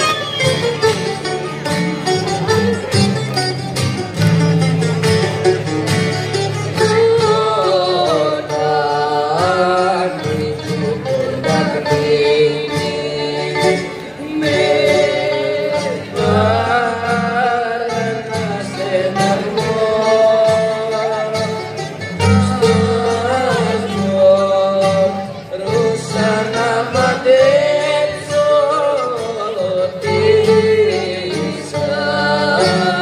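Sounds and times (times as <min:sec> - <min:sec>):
bouzoukis and guitars strumming: 0:00.0 - 0:33.0
young men singing: 0:06.9 - 0:21.3, 0:22.4 - 0:33.0.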